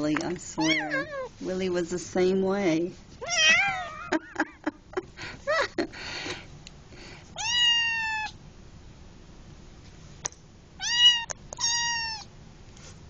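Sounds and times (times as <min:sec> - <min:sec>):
kitten meowing: 0:00.6 - 0:01.4, 0:03.2 - 0:03.9, 0:07.4 - 0:08.4, 0:10.8 - 0:12.3.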